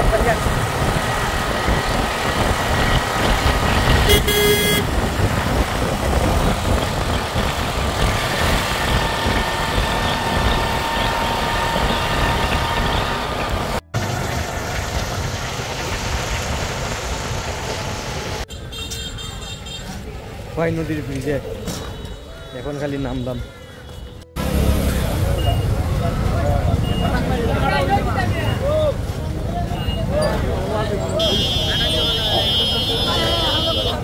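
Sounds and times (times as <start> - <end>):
vehicle engine and road noise: 0.0 - 34.0
horn toots: 4.0 - 5.0, 31.2 - 34.0.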